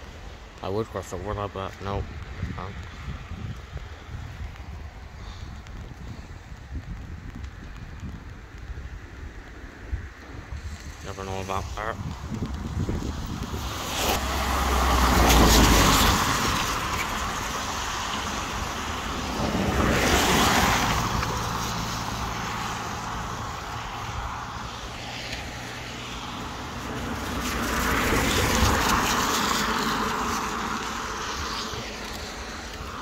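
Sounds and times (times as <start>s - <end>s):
cars passing on wet road: 0.0s - 33.0s.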